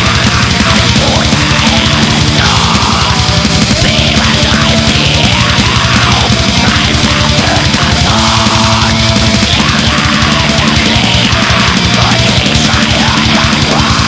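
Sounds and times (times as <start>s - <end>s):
distorted guitars: 0.0s - 14.0s
rapid dense drumming: 0.0s - 14.0s.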